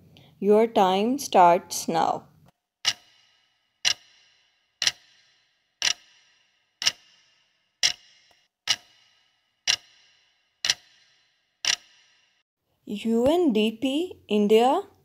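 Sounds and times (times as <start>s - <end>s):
countdown timer ticking: 2.8s - 12.2s.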